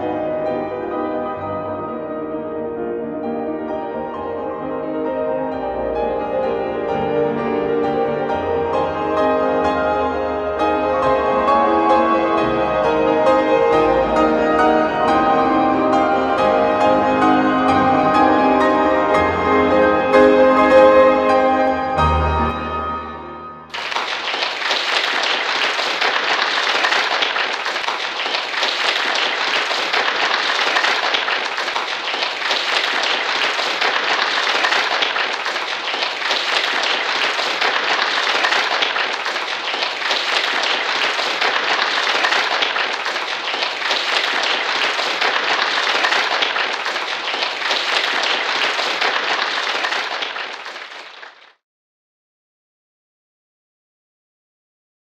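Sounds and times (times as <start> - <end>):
piano notes: 0.0 - 24.7
audience applause: 23.7 - 51.6.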